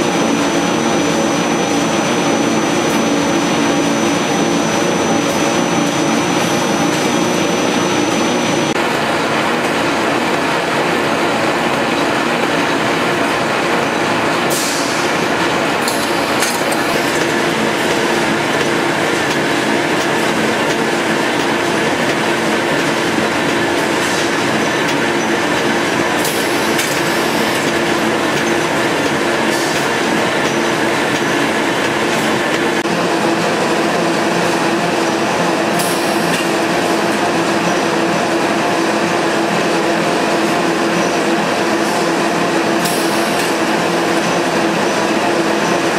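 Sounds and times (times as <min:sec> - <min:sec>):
machine running with mechanical din: 0:00.0 - 0:45.9
sharp machine clacks: 0:15.8 - 0:32.8.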